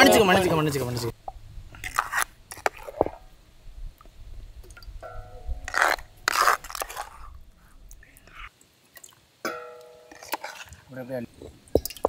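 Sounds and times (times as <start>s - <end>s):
paste squelching in stone mortar: 5.7s - 7.4s, 10.1s - 10.9s.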